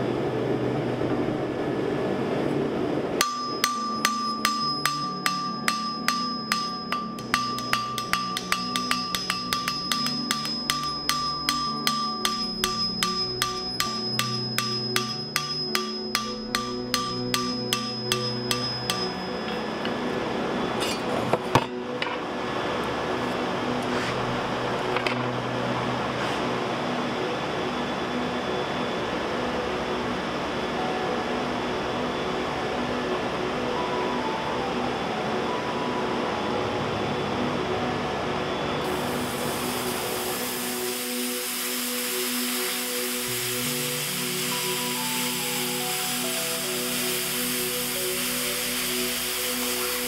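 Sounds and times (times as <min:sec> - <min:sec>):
hammer striking copper on anvil: 0:03.2 - 0:20.1, 0:20.8 - 0:22.2.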